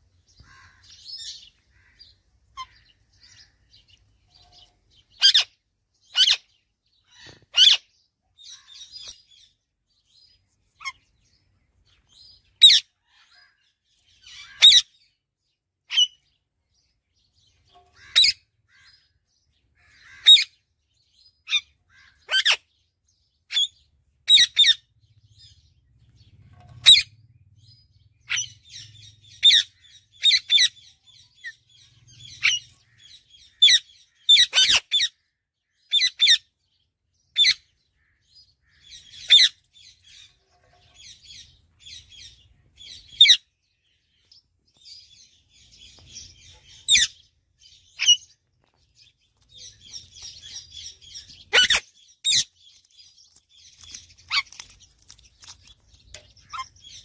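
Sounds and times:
parakeets calling: 0:00.3 - 0:09.5, 0:10.8 - 0:11.1, 0:12.2 - 0:15.2, 0:17.9 - 0:19.2, 0:19.8 - 0:20.6, 0:21.4 - 0:22.8, 0:23.5 - 0:27.2, 0:28.2 - 0:36.6, 0:44.8 - 0:57.0
parakeets chattering: 0:00.4 - 0:09.2, 0:28.2 - 0:35.2, 0:44.9 - 0:57.0.

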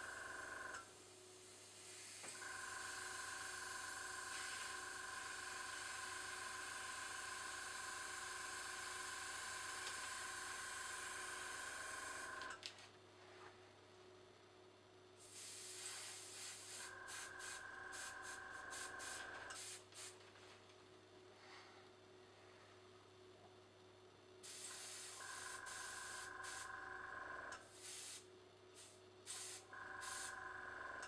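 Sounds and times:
airbrush compressor running: 0:00.0 - 0:00.9, 0:01.5 - 0:12.5, 0:15.2 - 0:20.1, 0:24.4 - 0:28.2, 0:28.8 - 0:31.0
airbrush spraying hiss: 0:15.2 - 0:20.1, 0:24.4 - 0:26.7, 0:27.7 - 0:28.2, 0:28.8 - 0:30.3.

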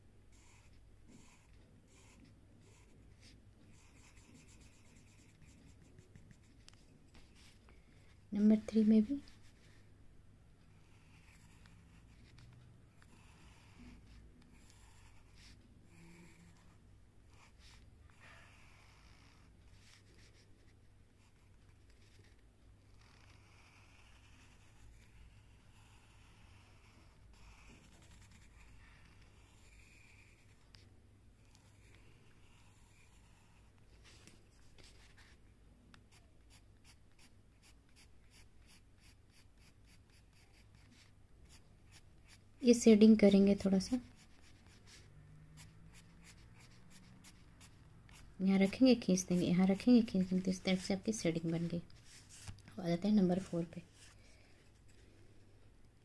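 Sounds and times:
pencil scratching on paper: 0:00.3 - 0:09.9, 0:10.7 - 0:35.4, 0:36.1 - 0:55.0.

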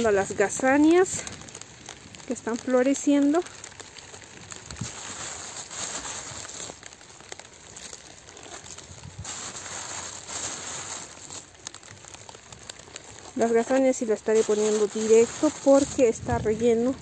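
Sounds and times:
crinkling and rustling: 0:00.0 - 0:17.0
rain pattering on plastic and leaves: 0:00.0 - 0:17.0.

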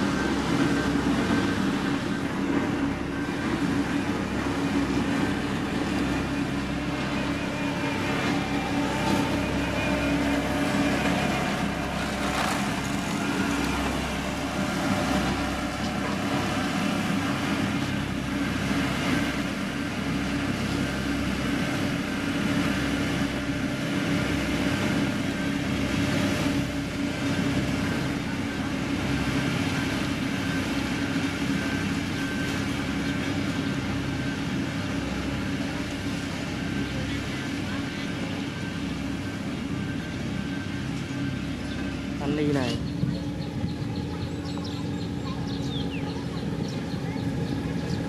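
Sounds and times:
diesel engine droning: 0:00.0 - 0:48.0.

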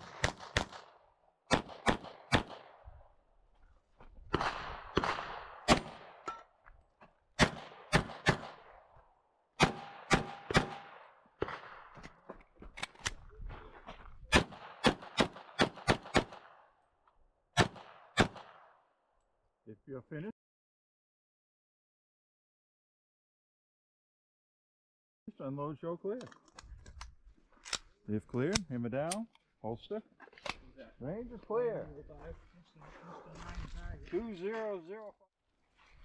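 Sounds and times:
pistol shots with echo: 0:00.0 - 0:02.8, 0:04.3 - 0:06.3, 0:07.4 - 0:08.8, 0:09.6 - 0:11.9, 0:14.3 - 0:16.7, 0:17.6 - 0:18.7.

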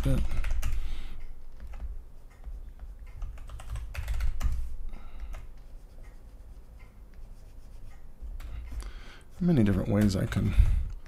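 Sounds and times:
keyboard and mouse clicking: 0:00.0 - 0:06.2
low steady hum: 0:00.0 - 0:11.0.

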